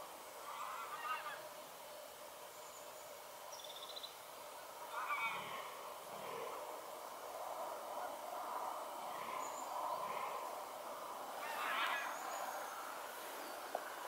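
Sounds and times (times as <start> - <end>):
geese honking faintly: 0.4 - 1.7, 4.6 - 14.0.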